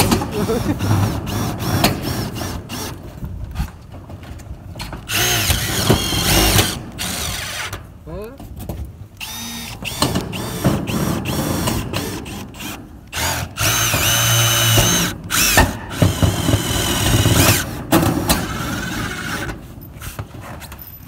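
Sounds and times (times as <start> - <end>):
screw gun driving screws into metal: 5.1 - 7.8, 9.2 - 19.6.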